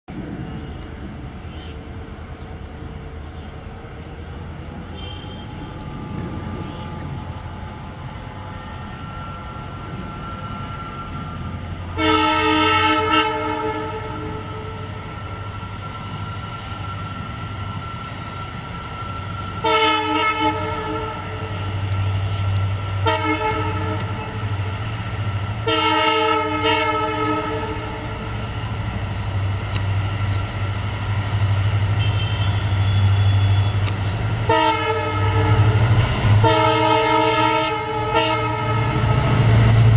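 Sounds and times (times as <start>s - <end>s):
diesel locomotive engine drone: 0.1s - 39.9s
multi-tone train horn blasts: 4.8s - 7.0s, 8.5s - 15.7s, 19.5s - 24.8s, 25.5s - 28.3s, 31.7s - 39.9s.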